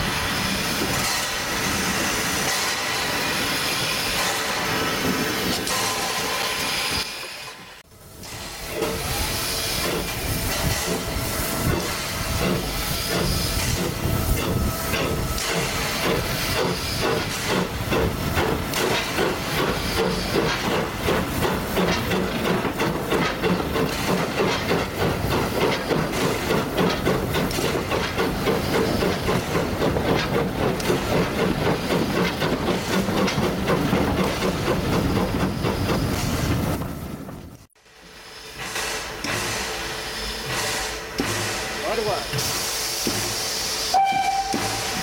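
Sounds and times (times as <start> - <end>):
steam hissing: 0.0 - 37.2, 37.8 - 45.0
steam locomotive exhaust chuffing: 0.0 - 45.0.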